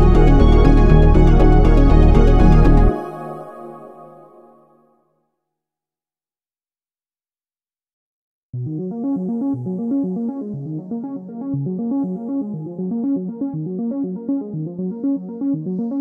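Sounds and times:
electronic keyboard melody: 0.0 - 4.8, 8.6 - 16.0.

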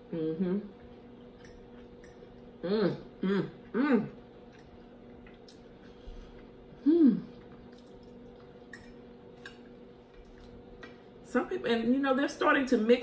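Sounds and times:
woman humming mmm: 0.0 - 0.8, 2.6 - 4.2, 6.8 - 7.5
faint steady hum: 0.0 - 13.0.

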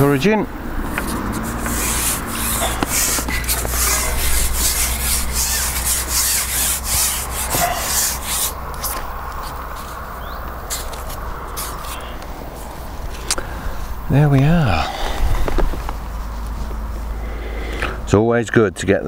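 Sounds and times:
fishing pole rasping over roller: 0.8 - 10.0, 10.6 - 12.7.

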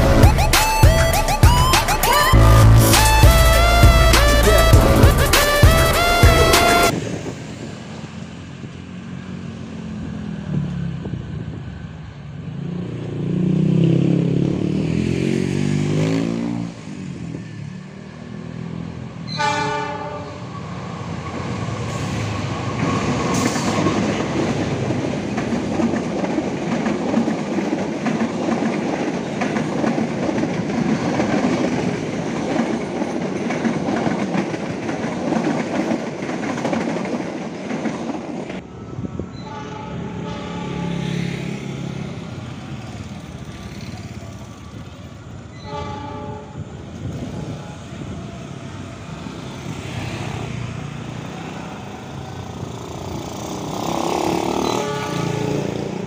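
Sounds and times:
train rumbling past: 0.0 - 56.0
train horn blasts: 2.1 - 6.9, 19.3 - 20.5, 39.3 - 41.4, 45.6 - 47.6, 54.3 - 55.8.

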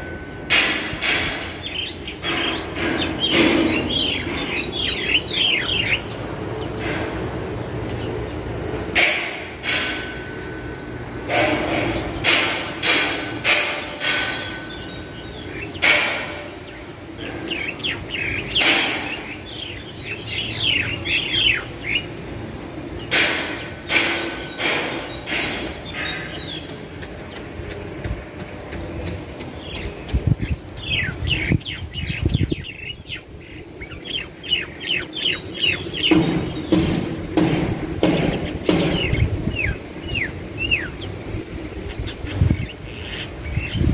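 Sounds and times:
sharp knocks: 0.5 - 4.2, 8.9 - 10.5, 11.2 - 15.1, 15.7 - 16.6, 18.5 - 19.3, 22.2 - 31.4, 36.0 - 39.7
birds chirping: 1.1 - 9.0, 10.4 - 43.9.

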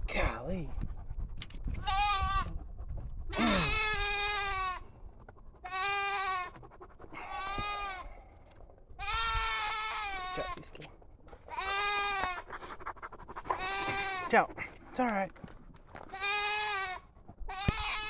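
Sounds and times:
goat bleating: 1.8 - 2.5, 3.3 - 4.8, 5.6 - 6.6, 7.2 - 8.0, 9.0 - 10.7, 11.5 - 12.7, 13.5 - 14.4, 16.1 - 18.0.

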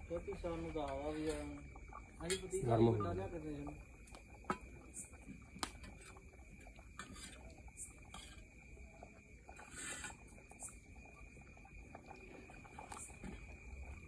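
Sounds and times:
high insect drone: 0.0 - 14.0.

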